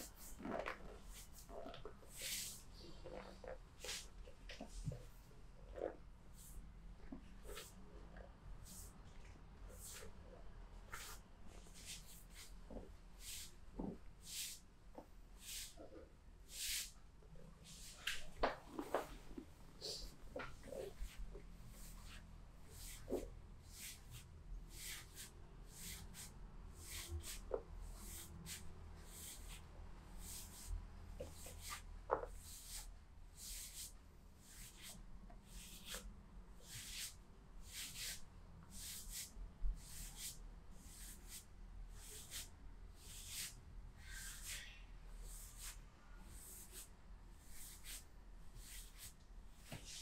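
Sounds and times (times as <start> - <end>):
hands rubbing soft swishes: 0.0 - 7.9, 9.7 - 10.2, 10.8 - 13.6.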